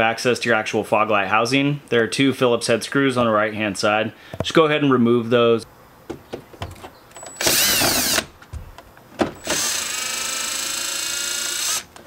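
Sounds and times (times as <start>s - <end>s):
cordless drill motor whining: 7.2s - 8.3s, 9.4s - 12.0s
drill bit clicking on screws: 7.2s - 8.3s, 9.4s - 12.0s.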